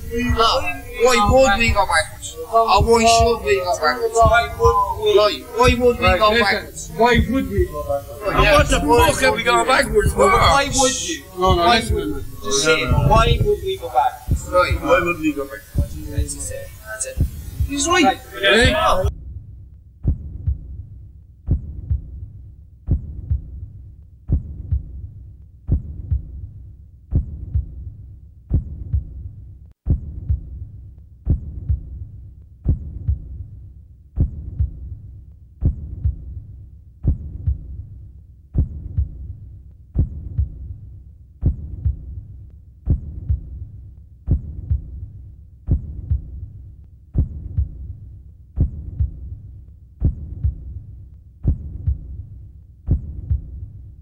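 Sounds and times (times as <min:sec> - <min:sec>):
slow low thumps: 0:04.1 - 0:13.6, 0:21.5 - 0:22.3, 0:45.7 - 0:46.5, 0:47.2 - 0:48.0, 0:48.6 - 0:49.4, 0:50.0 - 0:50.8, 0:51.4 - 0:52.3, 0:52.9 - 0:53.7.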